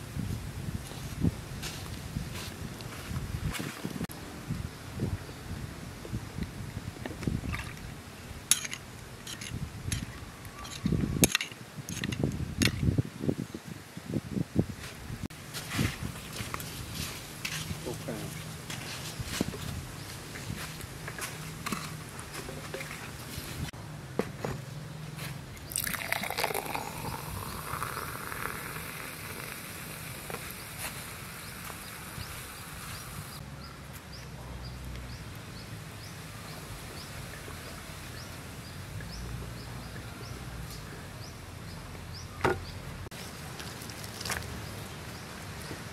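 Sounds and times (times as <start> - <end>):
drink gushing into a glass: 25.6 - 30.3.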